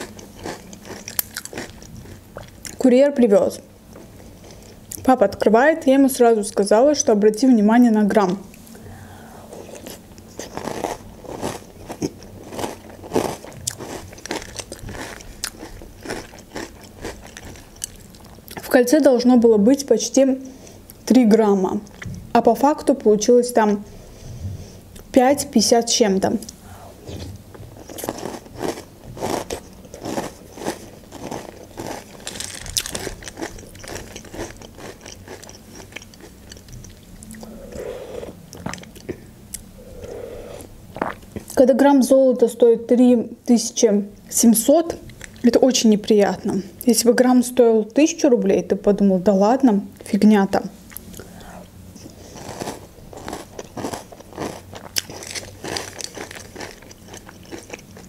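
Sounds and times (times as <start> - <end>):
chewing crunchy cereal: 0.0 - 2.8, 9.5 - 18.7, 27.7 - 37.6, 52.0 - 58.0.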